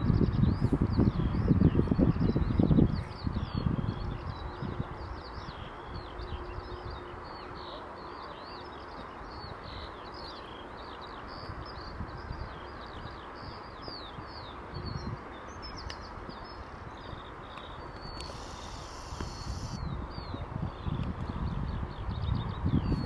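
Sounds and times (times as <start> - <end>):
small birds chirping: 0.2 - 23.0
low rushing background: 14.4 - 20.8.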